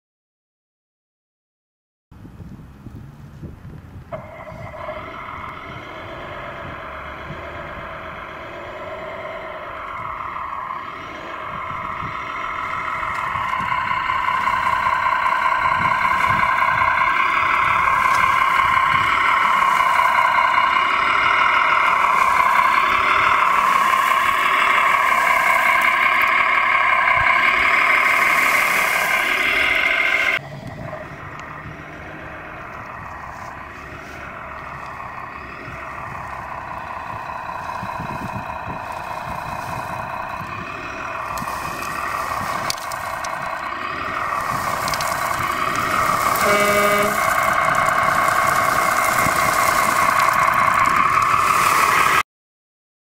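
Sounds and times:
model wheel loader whine: 2.2 - 52.2
wavering running sound: 4.0 - 52.2.

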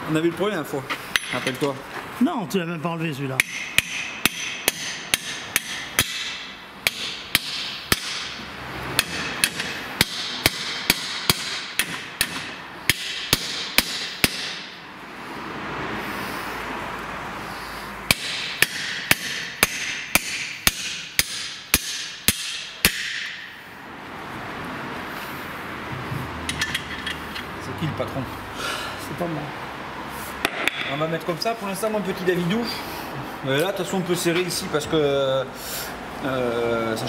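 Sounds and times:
hammer striking metal arm: 1.1 - 1.6, 3.4 - 14.8, 18.1 - 23.6.

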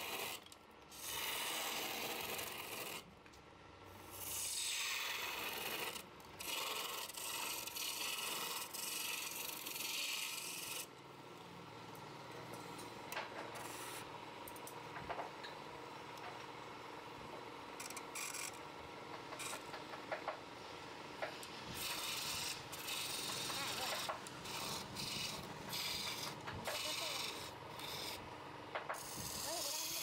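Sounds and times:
tool scraping on spinning wood: 0.0 - 3.1, 4.3 - 10.9, 17.8 - 20.4, 21.2 - 30.0.

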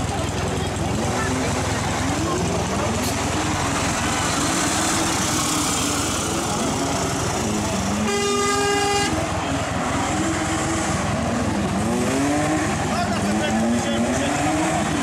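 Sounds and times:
truck engine pulling away: 0.0 - 8.2, 9.1 - 15.0
vehicle horn toot: 8.0 - 9.3.

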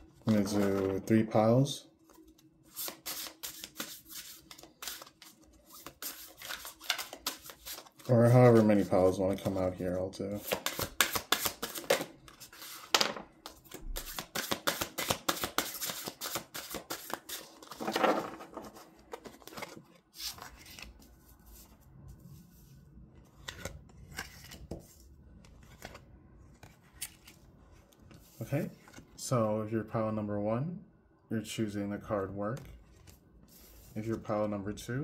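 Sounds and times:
cards being shuffled: 0.2 - 1.2, 2.0 - 9.6, 10.4 - 21.8, 23.2 - 29.1.

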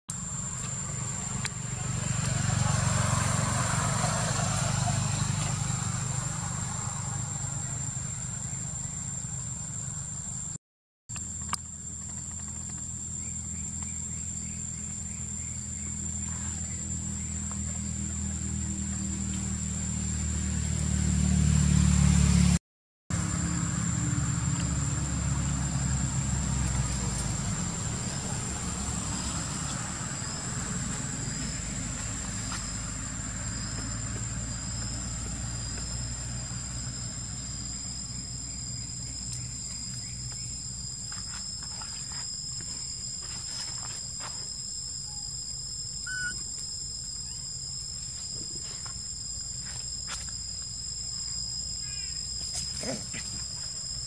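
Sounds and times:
insects droning: 0.1 - 22.5, 23.1 - 54.0
low engine rumble: 0.2 - 10.1, 11.7 - 40.8.

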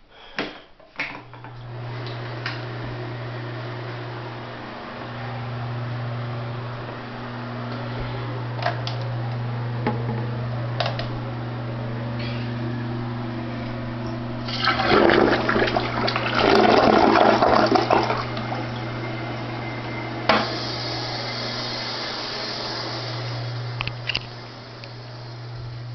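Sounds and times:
steady low hum: 0.0 - 25.9
toilet flushing: 14.4 - 23.8.

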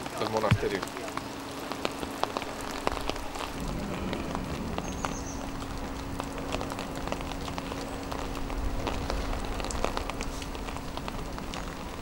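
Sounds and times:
rain falling: 0.0 - 12.0
raindrops tapping close by: 0.0 - 12.0
steady low hum: 0.0 - 12.0.

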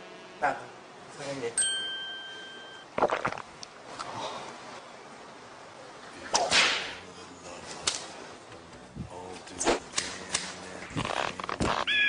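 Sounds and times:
sharp whip swish: 6.3 - 7.0
whip crack: 6.3 - 7.0.

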